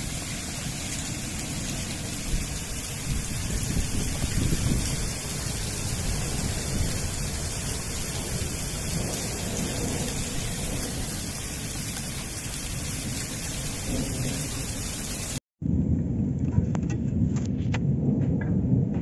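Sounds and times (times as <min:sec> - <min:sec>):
torrential rain pouring: 0:00.0 - 0:15.4
continuous low rumble: 0:15.6 - 0:19.0.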